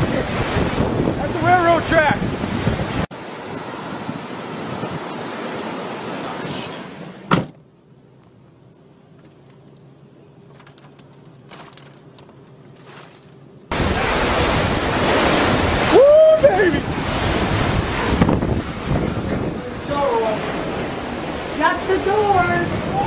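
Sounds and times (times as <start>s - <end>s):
wind rushing over microphone: 0.0s - 7.0s, 13.7s - 23.0s.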